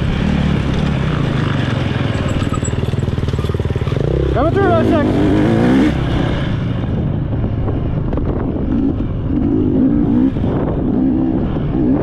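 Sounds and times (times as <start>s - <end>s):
racing engine revving: 3.6s - 6.6s.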